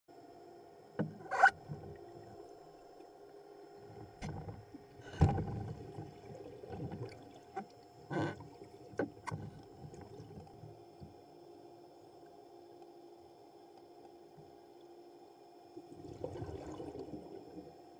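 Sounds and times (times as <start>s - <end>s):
steady low underwater hum: 0.1s - 17.9s
diver's bubbles gurgling: 4.7s - 10.8s, 15.8s - 17.8s.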